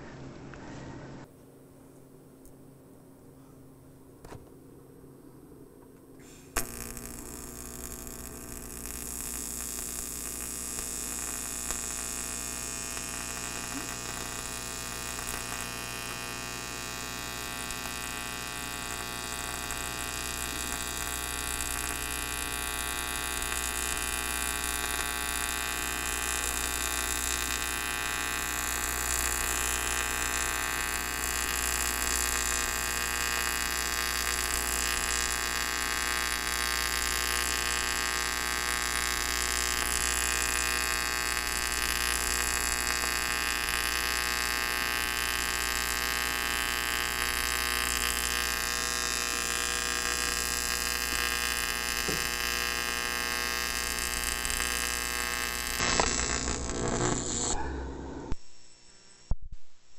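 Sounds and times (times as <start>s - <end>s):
welding arc buzzing: 6.5s - 59.3s.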